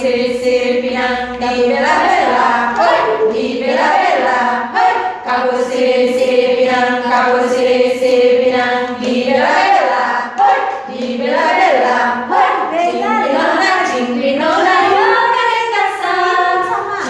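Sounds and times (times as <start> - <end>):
women's choir singing a cappella: 0.0 - 17.0.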